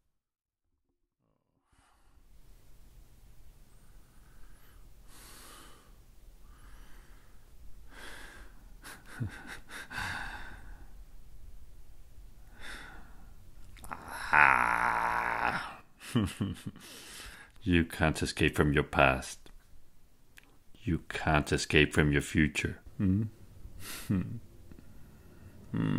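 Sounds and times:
faint low room hum: 1.7s - 25.9s
man breathing heavily and sighing: 4.0s - 11.0s, 12.4s - 15.9s, 16.8s - 17.6s, 23.0s - 25.9s
man vocal sound: 13.8s - 15.8s, 22.9s - 23.4s, 24.1s - 24.4s.

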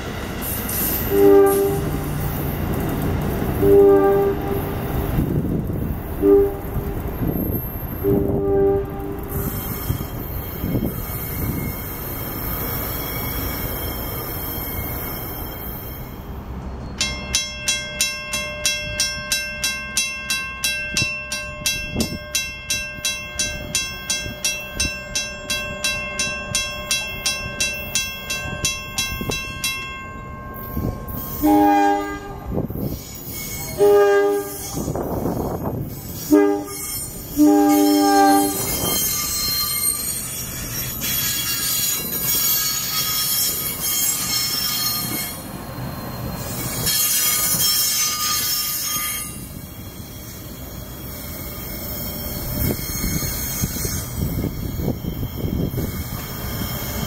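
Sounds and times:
train wheels squealing: 0.1s - 4.0s, 7.0s - 8.4s, 9.2s - 17.1s, 30.5s - 31.8s, 32.5s - 57.0s
train horn: 1.0s - 2.2s, 3.6s - 4.8s, 6.2s - 6.9s, 8.0s - 10.0s, 31.2s - 32.7s, 33.6s - 35.0s, 36.2s - 39.9s
crossing bell ringing rapidly: 9.2s - 31.6s, 32.4s - 57.0s.

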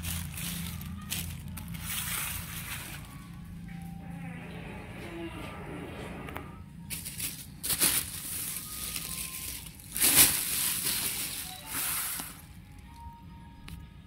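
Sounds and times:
plastic bags rustling: 0.0s - 3.6s, 6.8s - 13.2s.

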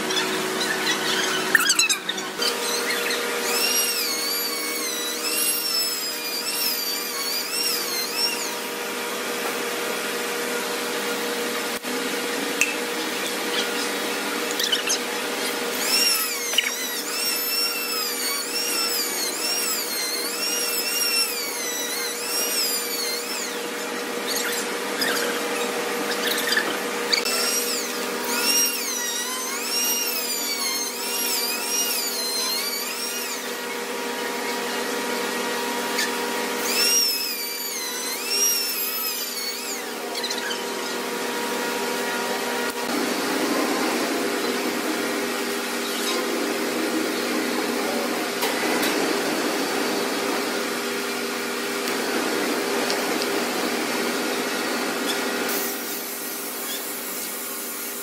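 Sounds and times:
high-pitched squeal: 0.0s - 8.8s, 13.1s - 41.0s
orbital sander motor hum: 0.0s - 9.6s, 13.0s - 43.1s.

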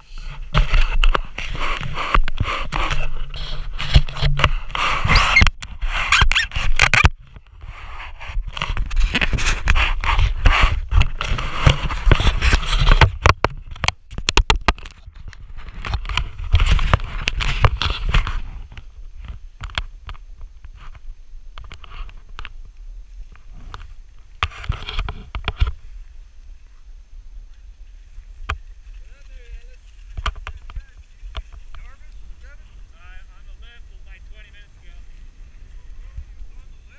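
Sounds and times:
sharp clicks and knocks: 10.9s - 20.2s
low wind rumble: 15.0s - 36.9s
skis scraping across packed snow: 23.0s - 36.9s.

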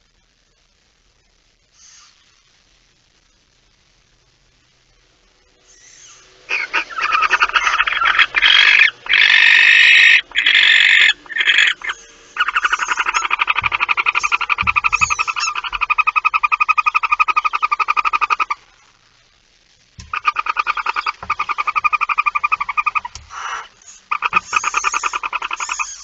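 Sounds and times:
barn owls hissing rasps: 1.7s - 2.4s, 5.6s - 18.9s, 20.0s - 26.0s.

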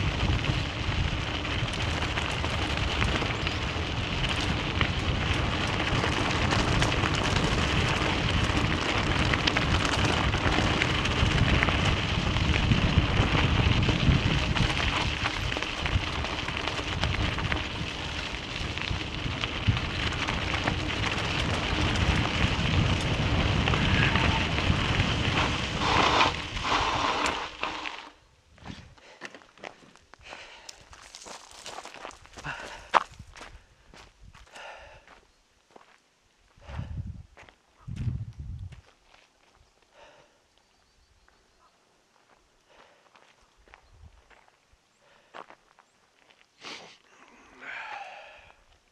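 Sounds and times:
tyres crunching over gravel: 0.0s - 28.2s, 29.1s - 36.0s.

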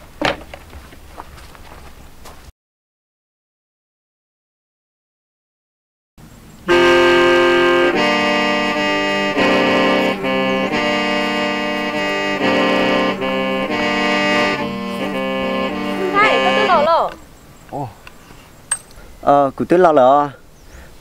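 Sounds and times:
free-reed mouth organ playing: 6.6s - 18.0s.

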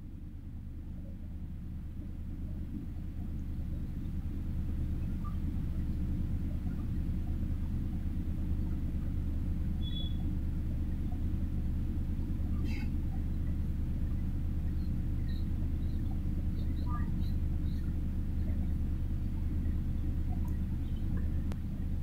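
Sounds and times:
low background rumble: 0.0s - 22.0s
faint high chirps: 9.8s - 10.3s, 14.6s - 18.0s.

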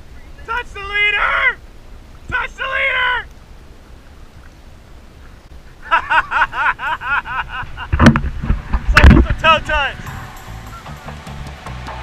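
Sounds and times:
wind and water noise: 0.0s - 12.0s
sharp thump: 8.0s - 9.3s.

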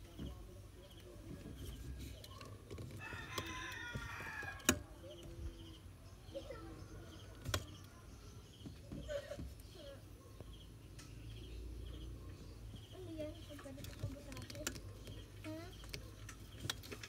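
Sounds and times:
faint chirping: 0.0s - 17.0s
rooster crowing: 3.0s - 4.7s.

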